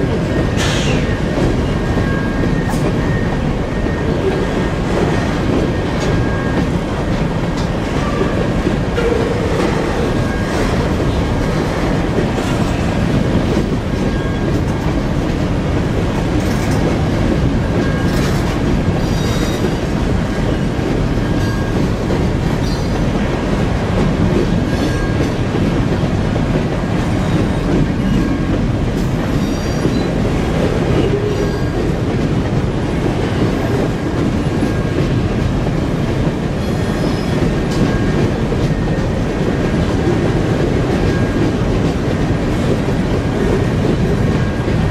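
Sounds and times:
train wheels rumbling on track: 0:00.0 - 0:44.9
high wheel squeals: 0:29.3 - 0:30.1.

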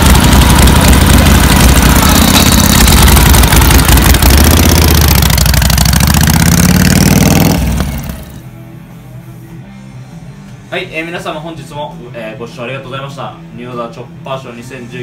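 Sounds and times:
motorcycle engine pulling away: 0:00.0 - 0:08.5.

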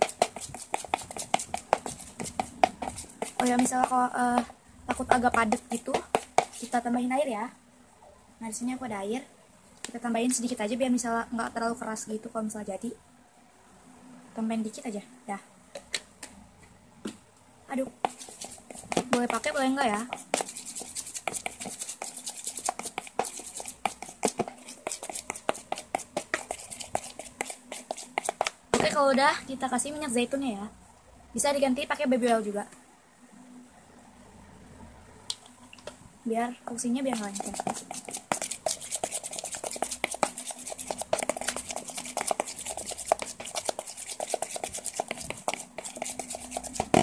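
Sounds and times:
spoon stirring slime: 0:00.0 - 0:06.9, 0:17.8 - 0:29.2, 0:36.7 - 0:47.0.

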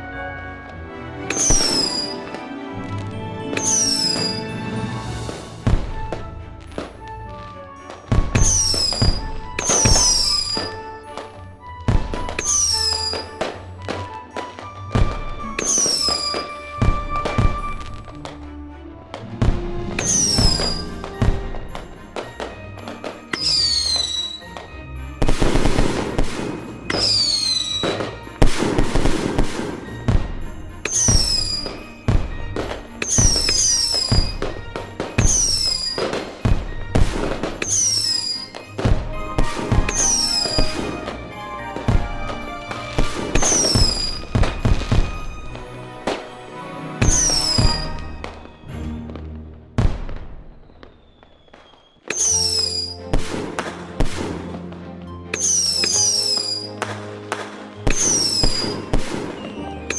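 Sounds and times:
music: 0:00.0 - 0:59.9
fireworks crackling: 0:00.5 - 0:18.5, 0:19.1 - 0:59.9
fireworks bangs: 0:01.2 - 0:18.4, 0:19.1 - 0:59.9
high falling whistles: 0:01.3 - 0:02.2, 0:03.6 - 0:04.7, 0:08.4 - 0:10.8, 0:12.4 - 0:13.4, 0:15.5 - 0:17.9, 0:20.0 - 0:21.0, 0:23.2 - 0:24.4, 0:26.9 - 0:28.0, 0:30.9 - 0:31.9, 0:35.2 - 0:36.1, 0:37.6 - 0:38.6, 0:39.5 - 0:41.0, 0:42.8 - 0:44.4, 0:47.0 - 0:48.4, 0:50.5 - 0:53.0, 0:55.4 - 0:56.8.

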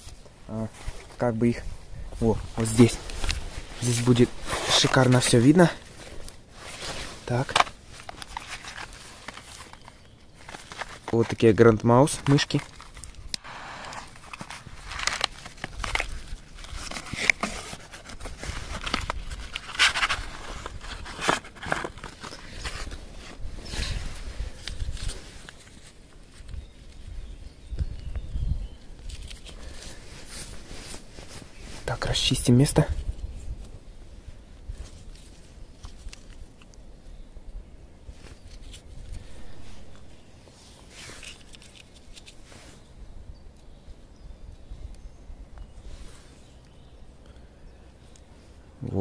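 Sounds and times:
footsteps scraping and crunching: 0:00.0 - 0:26.4, 0:38.1 - 0:42.8
rustling handling noise: 0:00.0 - 0:27.2, 0:28.9 - 0:36.8, 0:38.0 - 0:43.0
wind rumbling on microphone: 0:26.4 - 0:29.1, 0:32.8 - 0:35.1.

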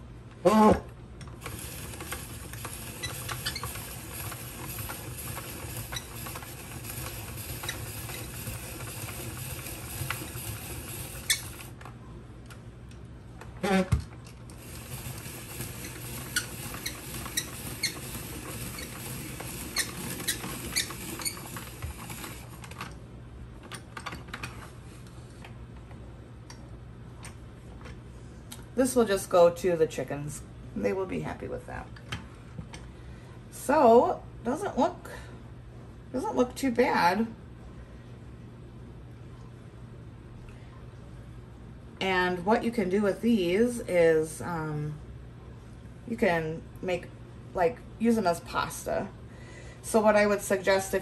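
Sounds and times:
spiralizer crank clicking: 0:01.2 - 0:11.9, 0:14.5 - 0:23.0.

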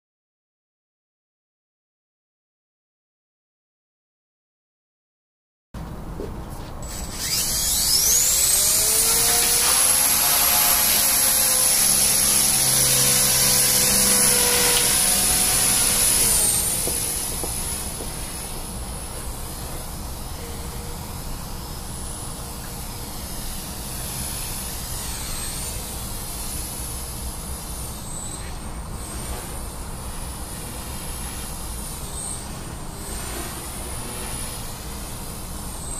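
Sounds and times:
rotor buzzing: 0:06.8 - 0:28.3
rc helicopter motor whine: 0:06.8 - 0:35.9.

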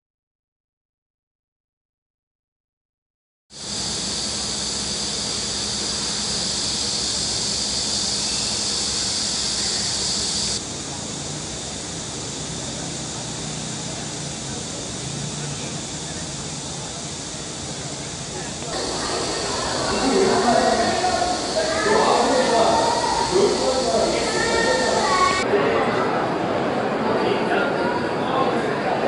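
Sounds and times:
cicadas droning: 0:03.5 - 0:25.4.

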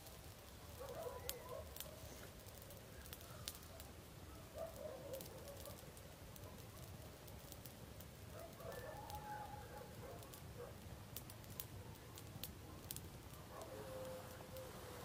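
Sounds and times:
campfire crackling and popping: 0:00.0 - 0:15.0.

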